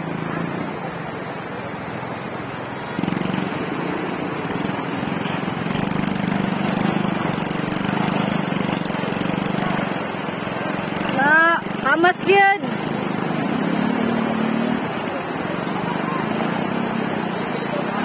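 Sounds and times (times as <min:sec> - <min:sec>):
wheels splashing through river: 0:00.0 - 0:18.0
small motorcycle engine running: 0:02.9 - 0:18.0.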